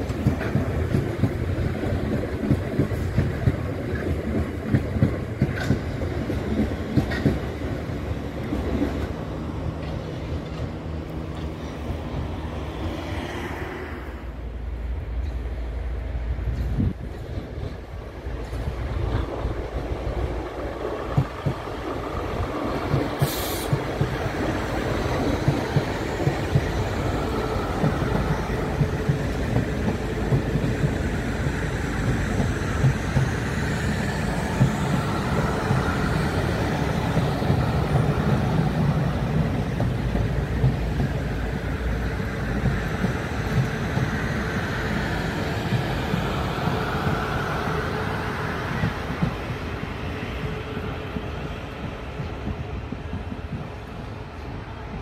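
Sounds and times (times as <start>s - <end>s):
train wheels clicking over rail joints: 0.0s - 12.4s, 16.4s - 54.5s
train running rumble: 0.0s - 55.0s
short hiss: 23.2s - 23.8s.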